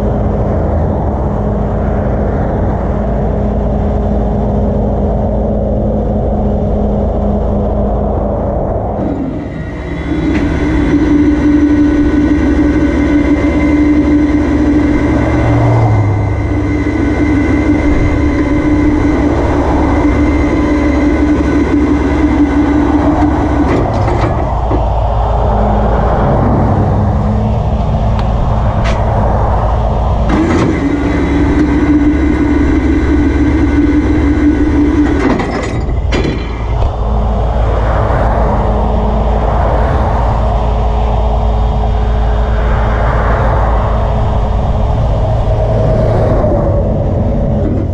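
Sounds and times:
truck engine rumble: 0.0s - 47.9s
hydraulic winch whine: 8.9s - 37.8s, 43.8s - 47.9s.

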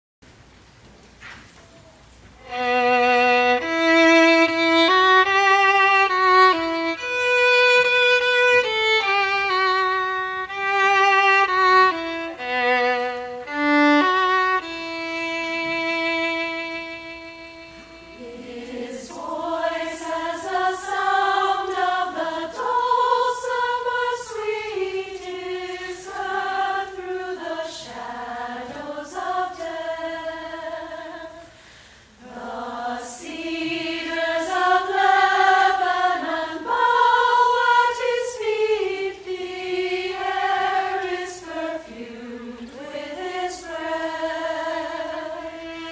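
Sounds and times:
solo violin melody: 2.4s - 22.2s, 44.8s - 45.9s
women's choir singing in unison: 15.5s - 45.9s.

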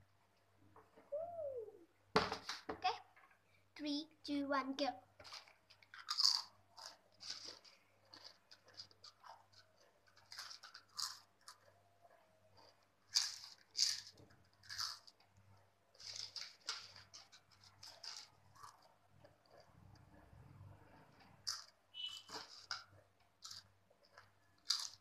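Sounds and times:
person crunching potato chips: 5.3s - 15.3s, 15.9s - 19.6s, 21.4s - 21.7s, 22.3s - 25.0s
quiet chewing: 5.3s - 25.0s.

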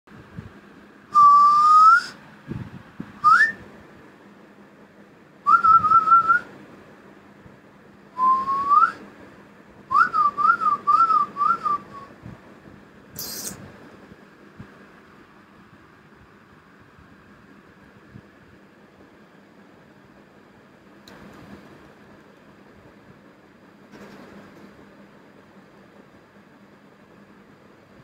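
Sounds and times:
person whistling: 1.2s - 2.2s, 3.2s - 3.6s, 8.2s - 9.0s, 9.9s - 12.1s.

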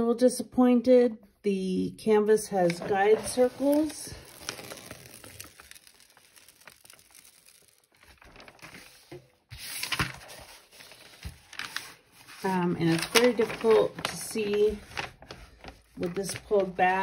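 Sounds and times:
plastic film crinkling: 2.6s - 17.0s.

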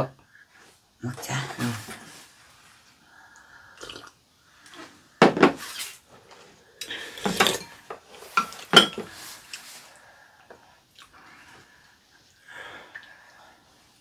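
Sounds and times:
wooden spoons clinking on bowls: 6.8s - 9.6s.

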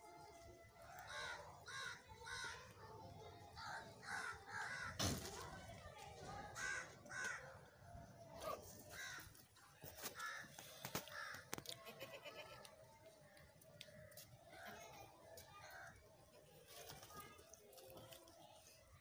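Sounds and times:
crows cawing: 1.1s - 2.6s, 3.6s - 5.0s, 6.6s - 7.6s, 8.9s - 9.4s, 10.2s - 11.6s.

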